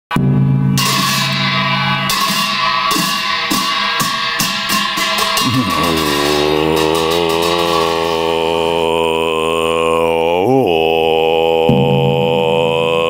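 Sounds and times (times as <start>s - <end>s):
held tone: 0.1s - 10.4s
sharp percussion strikes: 0.1s - 10.4s
steady drone: 0.2s - 11.7s
low chanting voice: 4.6s - 13.0s.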